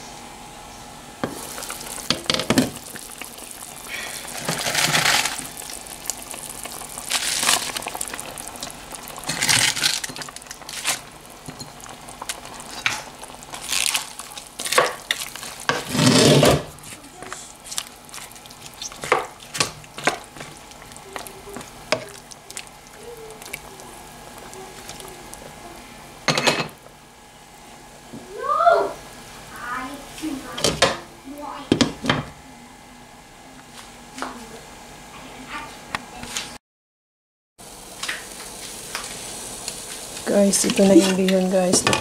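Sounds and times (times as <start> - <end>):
liquid splashing in pot: 1.3 - 16.5, 17.7 - 25.5.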